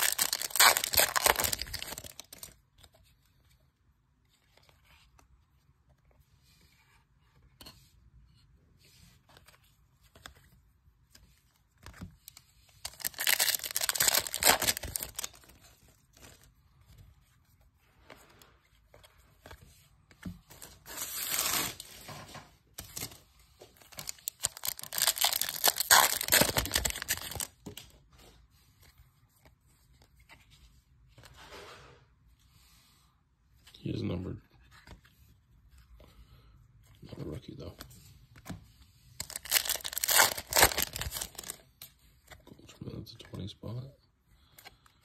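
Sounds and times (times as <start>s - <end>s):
card handling: 0.0s - 2.5s, 12.8s - 16.5s, 22.8s - 27.9s, 39.2s - 41.6s
wrappers crinkling and tearing: 0.0s - 2.6s, 12.8s - 15.6s, 20.6s - 23.2s, 23.8s - 27.6s, 39.2s - 41.6s.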